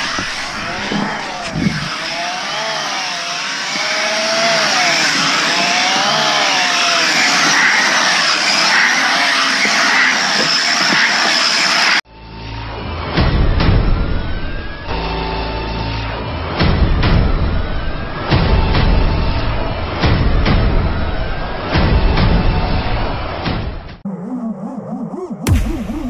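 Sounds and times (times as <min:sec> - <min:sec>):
drone motors whining: 0:00.0 - 0:26.0
rush of wind: 0:04.9 - 0:12.0.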